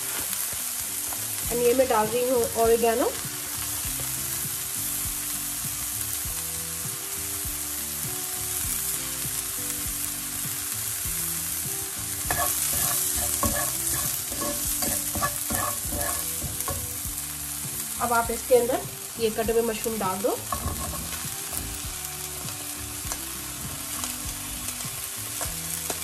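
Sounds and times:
vegetables sizzling in oil: 0:00.0 - 0:26.0
spatula scraping a pan: 0:12.3 - 0:17.0, 0:20.5 - 0:21.2.

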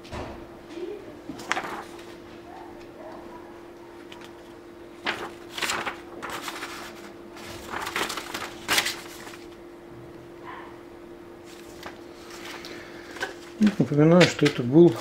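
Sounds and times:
faint hum: 0:00.2 - 0:15.0
paper pages rustling: 0:01.3 - 0:02.9, 0:04.0 - 0:09.6, 0:11.4 - 0:15.0.

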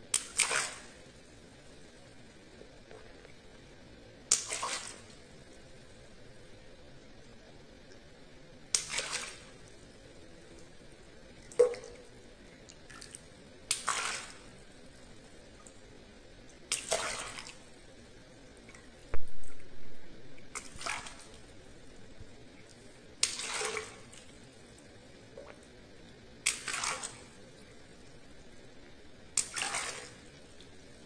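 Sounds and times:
water splashing over hands: 0:00.2 - 0:00.9, 0:04.3 - 0:05.1, 0:08.7 - 0:09.5, 0:12.9 - 0:14.4, 0:16.7 - 0:17.6, 0:20.6 - 0:21.4, 0:23.2 - 0:24.3, 0:26.4 - 0:27.3, 0:29.4 - 0:30.2.

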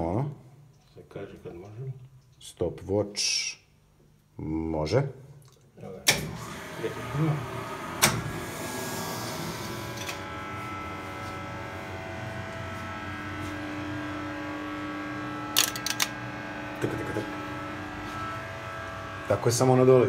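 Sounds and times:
hydraulic elevator motor and pump: 0:06.1 - 0:20.0.

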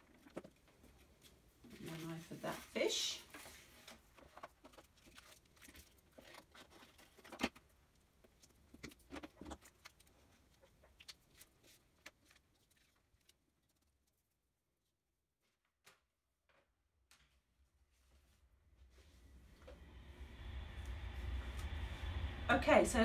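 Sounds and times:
paper and card rustling: 0:00.0 - 0:14.4.

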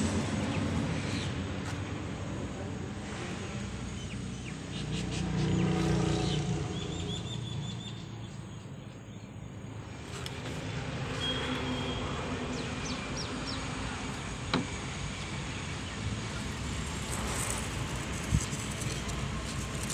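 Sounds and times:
low outdoor rumble: 0:09.8 - 0:19.9.

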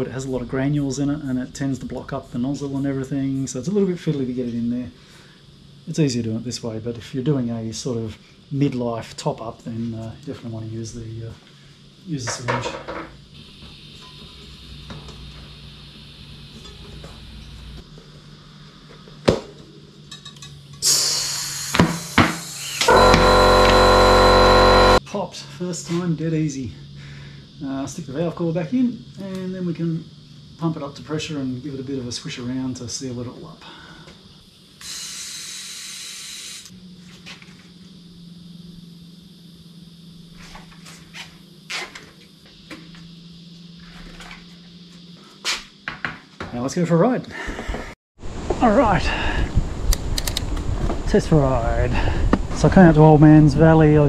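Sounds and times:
faint steady hum: 0:00.0 - 0:22.1, 0:22.8 - 0:54.0
tools and parts clinking: 0:20.1 - 0:20.6
loud air hiss: 0:20.8 - 0:23.6
sharp click: 0:49.9 - 0:50.6.

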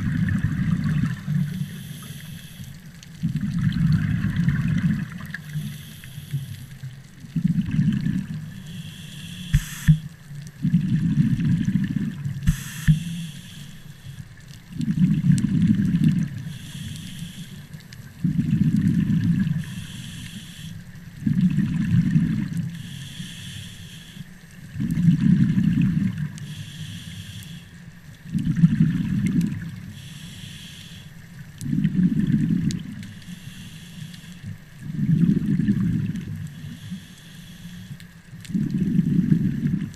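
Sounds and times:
exhaled bubbles rumbling: 0:00.0 - 0:01.7, 0:03.1 - 0:05.5, 0:07.0 - 0:08.8, 0:09.4 - 0:13.3, 0:14.3 - 0:16.6, 0:18.0 - 0:19.8, 0:21.1 - 0:22.8, 0:24.6 - 0:26.4, 0:28.2 - 0:29.9, 0:31.5 - 0:33.1, 0:34.4 - 0:36.7, 0:38.4 - 0:39.9
regulator hiss on inhale: 0:01.3 - 0:03.1, 0:05.3 - 0:07.0, 0:08.3 - 0:10.2, 0:12.4 - 0:14.5, 0:16.4 - 0:18.5, 0:19.3 - 0:21.1, 0:22.6 - 0:24.5, 0:26.3 - 0:28.0, 0:29.8 - 0:35.3, 0:36.4 - 0:39.4.

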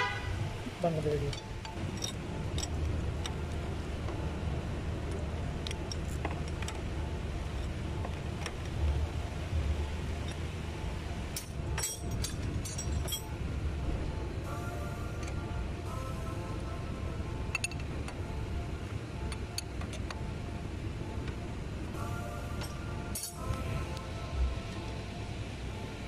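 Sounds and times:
low background rumble: 0:00.0 - 0:26.0
sharp metallic clinks: 0:01.1 - 0:02.9, 0:11.4 - 0:13.4, 0:22.6 - 0:23.5.

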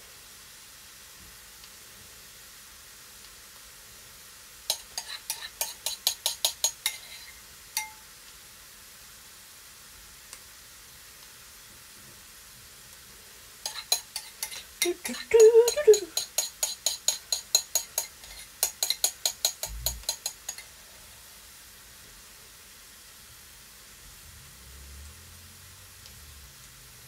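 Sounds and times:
spoon scraping inside a bowl: 0:04.7 - 0:08.0, 0:13.6 - 0:20.7.

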